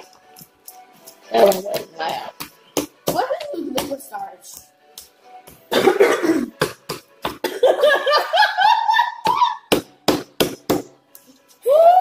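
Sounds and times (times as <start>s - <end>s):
person laughing: 7.4s - 9.7s.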